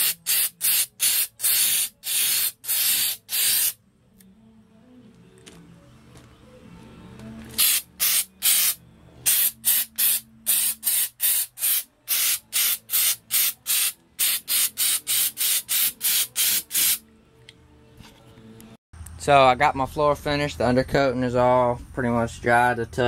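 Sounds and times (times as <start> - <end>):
aerosol can spraying in short bursts: 0.0 - 3.8, 7.6 - 17.0.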